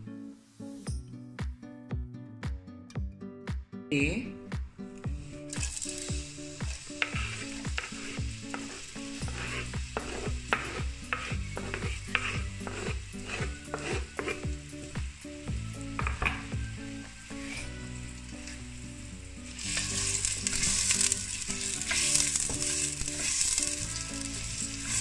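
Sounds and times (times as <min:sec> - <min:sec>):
onion sizzling in hot oil: 0:05.0 - 0:25.0
spatula scraping and knocking: 0:05.6 - 0:14.6, 0:16.0 - 0:16.6, 0:19.7 - 0:25.0.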